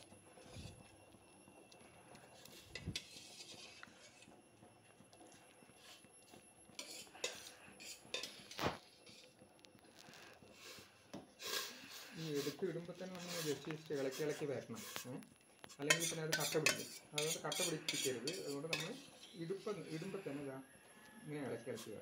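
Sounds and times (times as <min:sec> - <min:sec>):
ladle clinking against metal bowl: 0:15.9 - 0:19.1.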